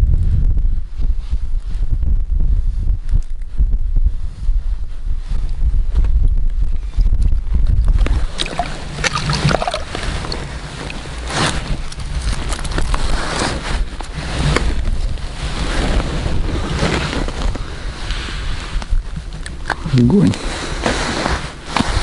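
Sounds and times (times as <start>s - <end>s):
wind buffeting microphone: 0.0s - 22.0s
rushing rustle: 8.0s - 19.4s, 20.4s - 22.0s.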